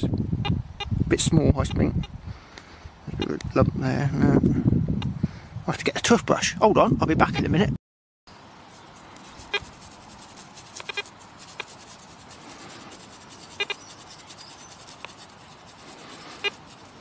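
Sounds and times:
toothbrush scrubbing a ball: 8.7s - 17.0s.

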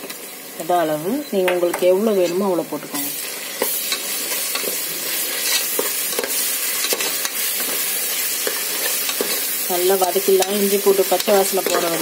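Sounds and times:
food sizzling in hot oil: 0.0s - 12.0s
spatula scraping and knocking pan: 3.6s - 12.0s.

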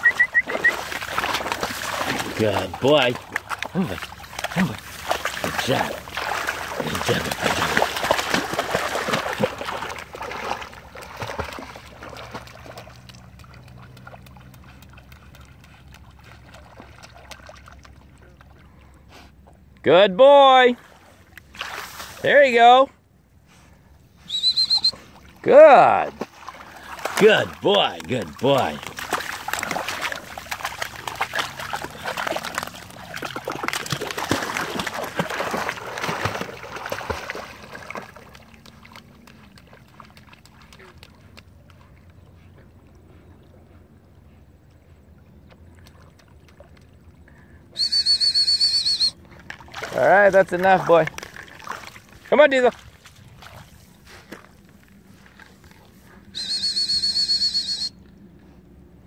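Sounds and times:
dog splashing in water: 0.0s - 18.6s, 20.8s - 22.2s, 26.0s - 42.0s, 49.3s - 56.1s
water lapping: 0.0s - 56.7s.

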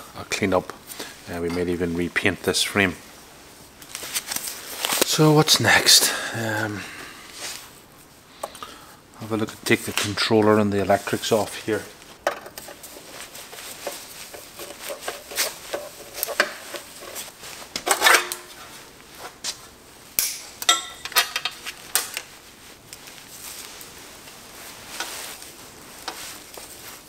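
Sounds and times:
cable ties snapping: 20.2s - 22.3s.

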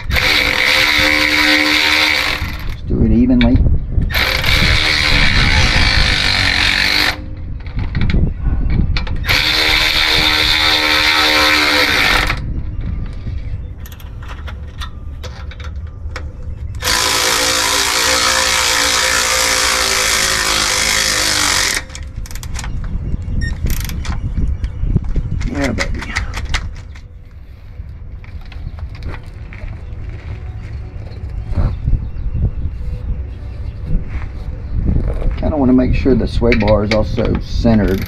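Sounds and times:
electric ratchet running: 0.0s - 2.8s, 4.1s - 7.3s, 9.2s - 12.4s, 16.8s - 22.6s.

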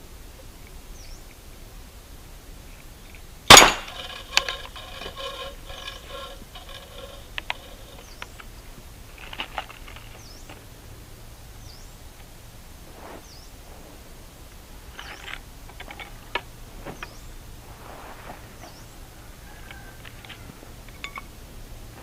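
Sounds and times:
faint bird chirps: 0.4s - 1.4s, 11.5s - 12.0s, 18.2s - 21.1s
toy gun firing crack: 3.5s - 8.0s
metallic ringing: 3.5s - 8.2s
gun handling clicks: 3.5s - 8.5s.

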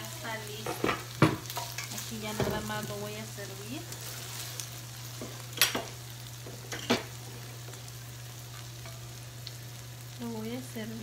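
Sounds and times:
faint pan sizzle: 0.0s - 11.0s
spatula scraping a skillet: 3.9s - 5.9s.

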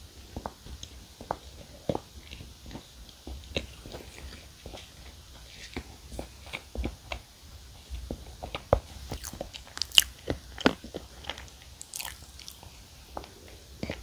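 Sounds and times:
chewing with wet mouth clicks: 9.1s - 12.7s.

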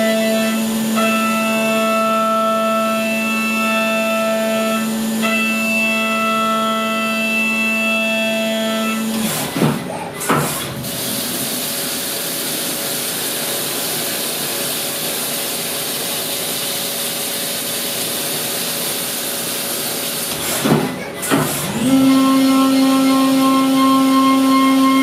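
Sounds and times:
coolant spray hissing: 10.8s - 20.7s.

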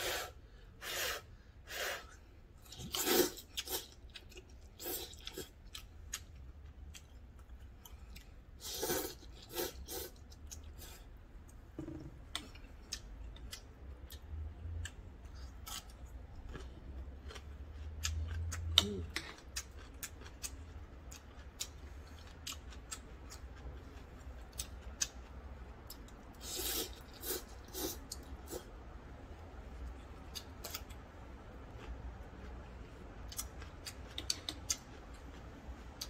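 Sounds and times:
noodles being slurped: 0.0s - 4.0s, 8.6s - 11.0s
chewing with small clicks: 2.6s - 8.5s, 12.3s - 27.2s, 29.7s - 36.0s.

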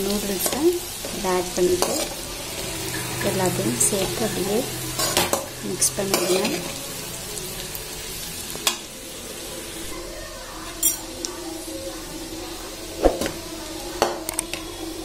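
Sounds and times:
spatula stirring in steel pan: 0.1s - 6.8s.

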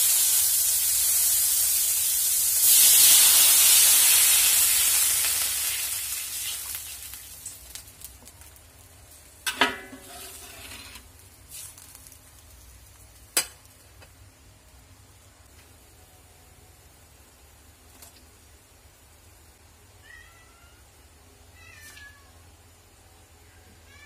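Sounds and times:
water hissing in hot wok: 0.0s - 13.3s
metal spatula clanging on wok: 9.5s - 10.4s.

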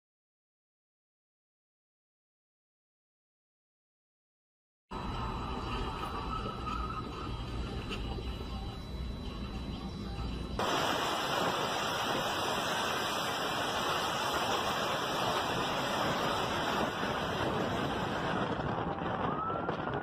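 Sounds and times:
strong wind buffeting microphone: 10.6s - 20.0s
siren rising in pitch: 17.9s - 20.0s.

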